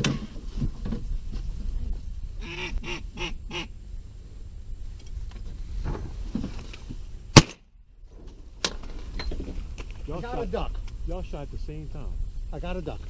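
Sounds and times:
shotgun blast: 0:07.3 - 0:07.6.

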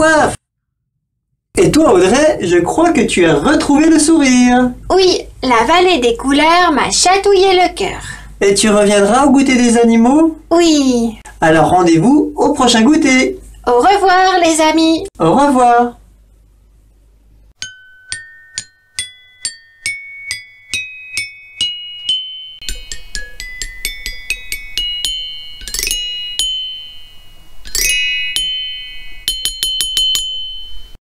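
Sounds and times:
glockenspiel chimes jingle: 0:17.6 - 0:31.0.

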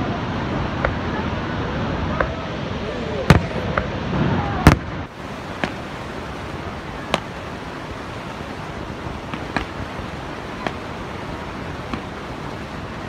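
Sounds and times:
steady rushing noise: 0:00.0 - 0:13.0
distant fireworks bangs: 0:03.2 - 0:13.0.

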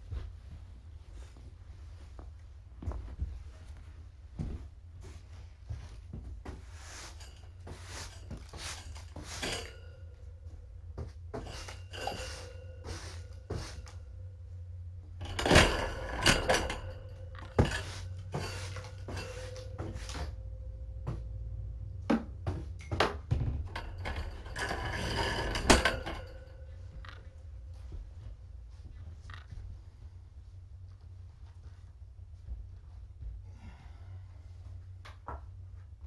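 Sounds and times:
low steady hum: 0:00.0 - 0:36.0
objects knocking and clattering: 0:05.7 - 0:14.2, 0:15.1 - 0:29.7.

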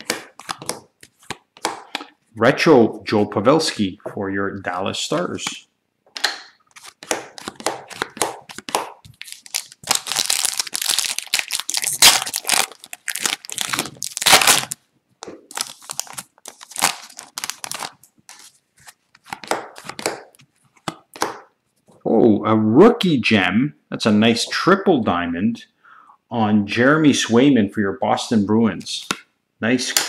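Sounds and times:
trading cards flicking and sliding: 0:00.0 - 0:02.1, 0:06.2 - 0:09.7
foil wrapper crinkling and tearing: 0:06.7 - 0:14.8, 0:15.5 - 0:20.0.

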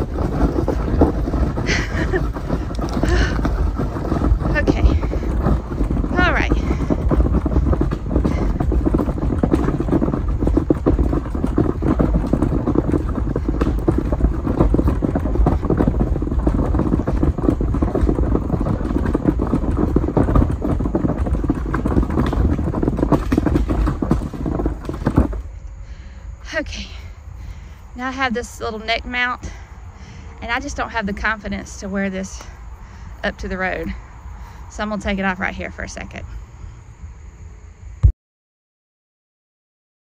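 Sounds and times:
footsteps on gravel: 0:00.0 - 0:25.6
garbage can rolling over gravel: 0:00.0 - 0:36.4.

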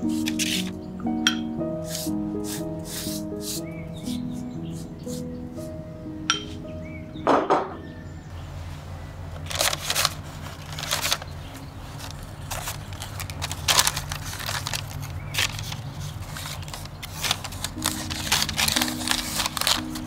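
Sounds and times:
soft background music: 0:00.0 - 0:20.0
baking parchment crinkling: 0:09.3 - 0:20.0.

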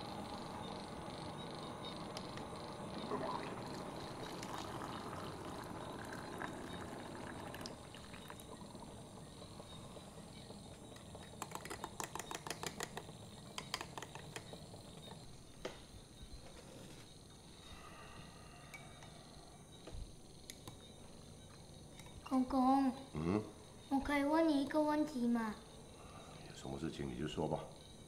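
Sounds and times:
coffee pouring into glass: 0:02.9 - 0:13.0.

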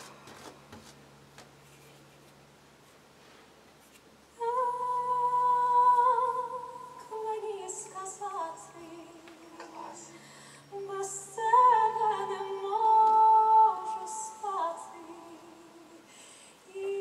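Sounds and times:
woman singing unaccompanied: 0:04.4 - 0:17.0.

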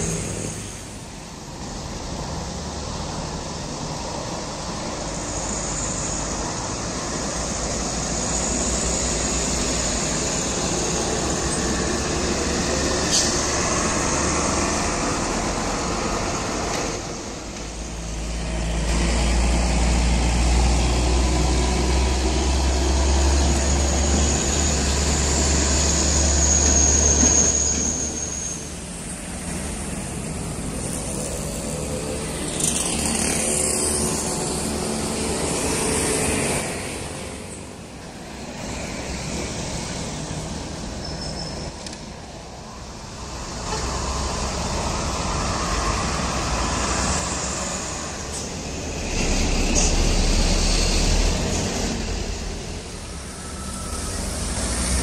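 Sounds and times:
diesel trucks passing: 0:00.0 - 0:55.0.

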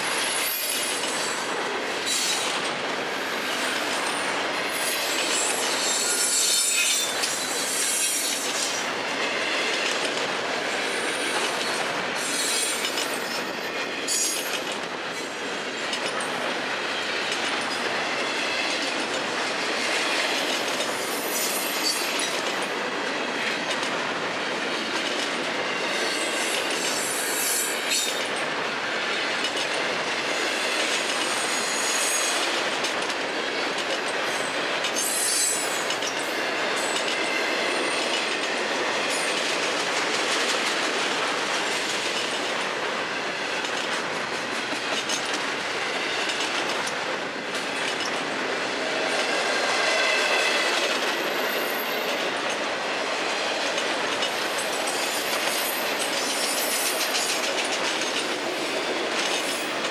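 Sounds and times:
train wheels rumbling on rail: 0:00.0 - 0:59.9
wheel squeal: 0:05.4 - 0:08.4.

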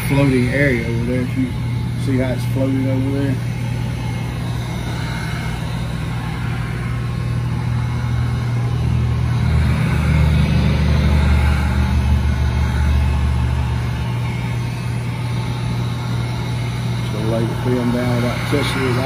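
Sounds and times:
heat gun blowing: 0:00.0 - 0:19.0.

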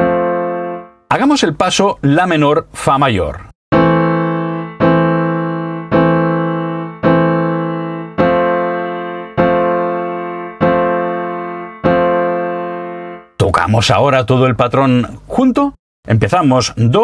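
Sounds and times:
piano chords on keyboard: 0:00.0 - 0:01.2, 0:03.7 - 0:13.4.

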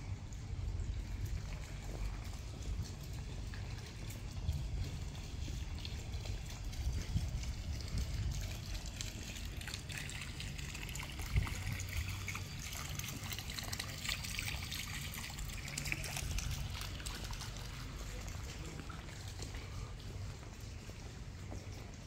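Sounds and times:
water trickling: 0:00.0 - 0:22.0.

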